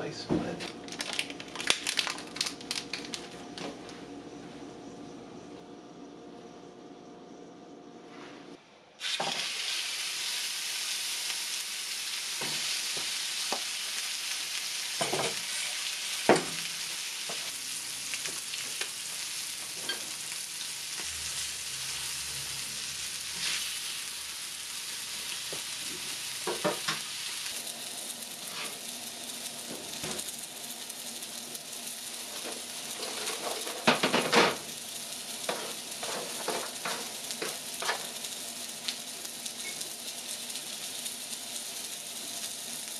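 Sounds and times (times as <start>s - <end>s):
meat sizzling in a skillet: 9.0s - 42.9s
tongs scraping a pan: 32.4s - 33.9s.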